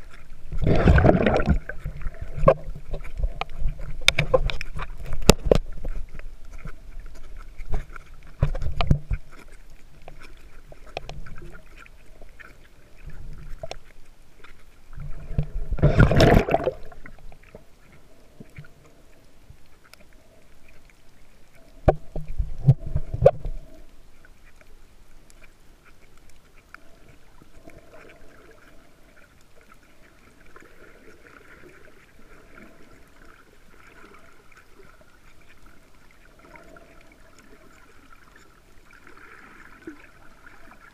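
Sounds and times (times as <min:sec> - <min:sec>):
splashing: 0:00.0 - 0:13.8, 0:14.5 - 0:17.7
rush of water: 0:00.0 - 0:40.9
steady underwater hiss: 0:00.0 - 0:40.9
underwater sloshing and knocking: 0:00.0 - 0:40.9.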